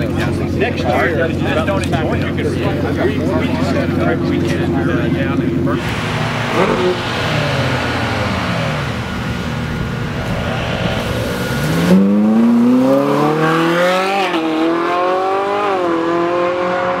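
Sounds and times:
sports car engine accelerating: 5.3 - 17.0.

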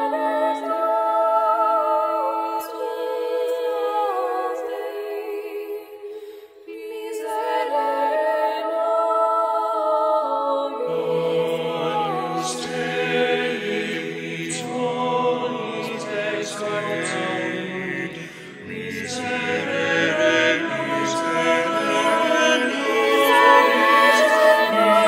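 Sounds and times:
women singing: 0.0 - 25.0
men singing lower parts: 10.9 - 25.0.

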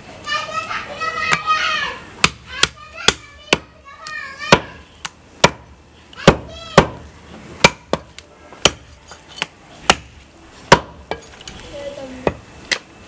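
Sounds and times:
cleaver chopping meat on wood: 5.4 - 7.0, 7.6 - 8.9, 9.9 - 10.1, 10.7 - 11.0.

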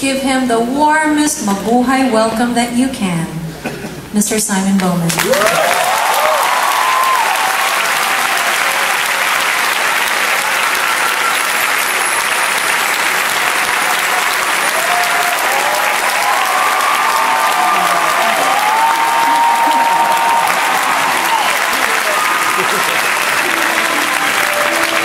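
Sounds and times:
audience applauding: 5.1 - 25.0.

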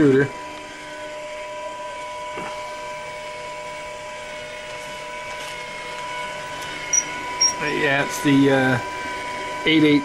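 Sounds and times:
stepper motors whining: 2.1 - 8.8.

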